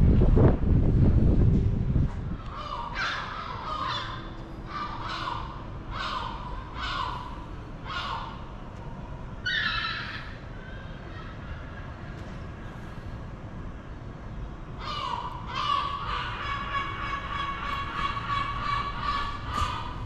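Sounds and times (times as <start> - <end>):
large bird harsh calls: 2.4 - 8.6, 9.4 - 11.8, 14.8 - 20.0.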